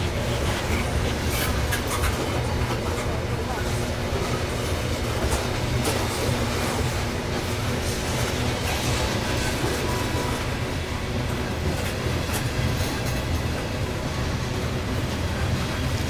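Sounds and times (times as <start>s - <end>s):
freight train rolling past: 0.0s - 16.0s.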